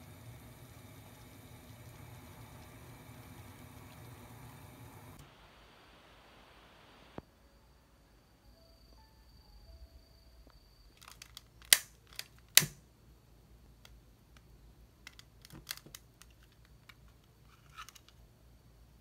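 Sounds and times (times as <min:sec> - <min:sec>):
lighter igniter snapping: 0:12.6 - 0:12.8.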